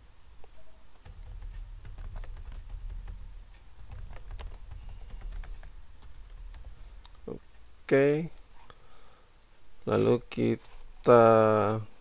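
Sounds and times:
low steady hum: 0.0s - 12.0s
keyboard key clicks: 1.0s - 7.3s.

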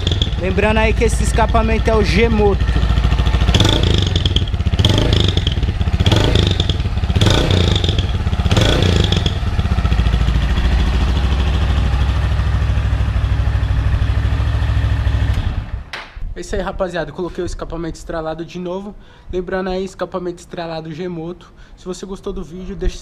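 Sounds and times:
motorcycle engine revving and idling: 0.0s - 15.9s.

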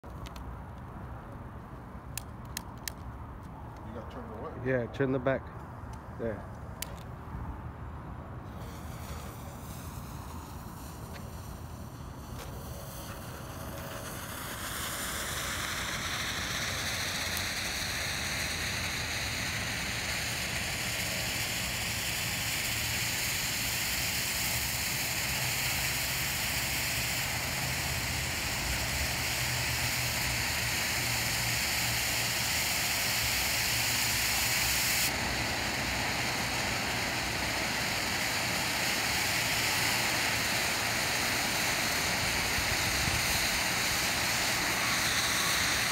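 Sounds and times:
firework fountain hissing: 8.4s - 45.9s.

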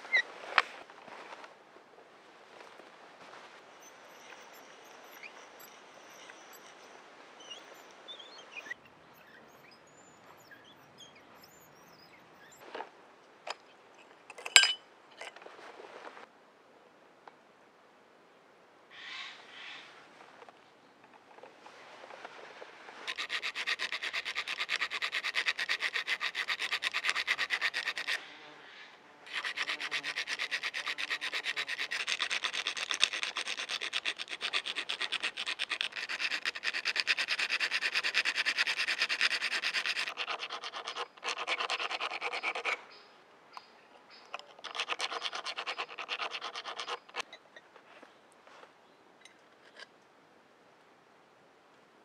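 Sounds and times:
file rasping on metal plate: 23.1s - 28.2s, 29.3s - 42.8s, 44.5s - 47.2s.

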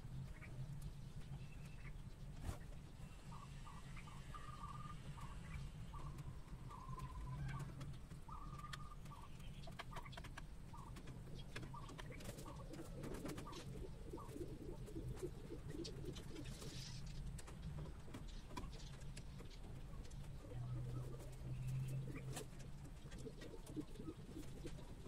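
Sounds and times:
chicken calls: 1.6s - 17.0s
chickens pecking on plate: 6.0s - 25.0s.

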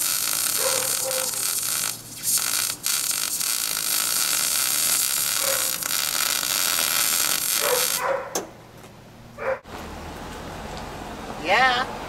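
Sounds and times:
welder arc crackling: 0.0s - 8.0s
dog yipping: 0.6s - 1.4s, 5.4s - 5.7s, 7.6s - 8.4s, 9.4s - 9.6s.

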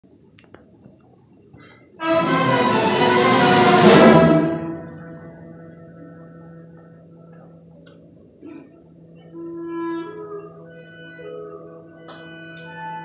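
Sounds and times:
orchestra playing: 2.0s - 6.5s.

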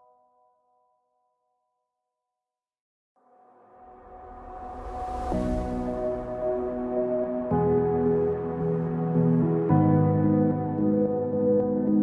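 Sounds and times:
soft ambient music: 3.2s - 12.0s.

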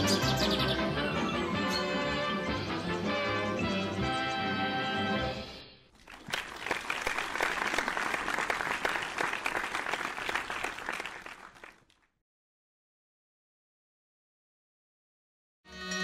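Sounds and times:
crowd applauding: 6.0s - 12.0s.

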